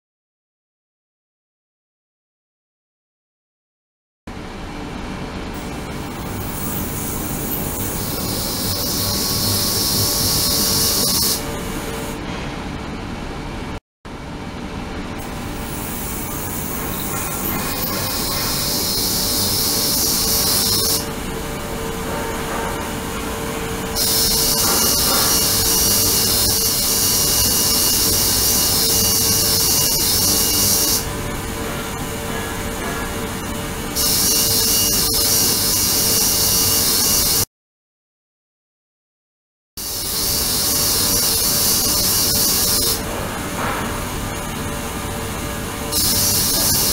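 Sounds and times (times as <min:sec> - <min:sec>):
steady low hum: 0:04.3 - 0:34.0.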